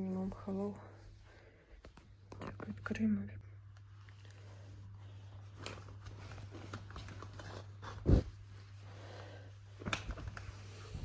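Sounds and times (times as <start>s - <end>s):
rustling and small clicks: 5.4s - 8.2s, 9.7s - 11.0s.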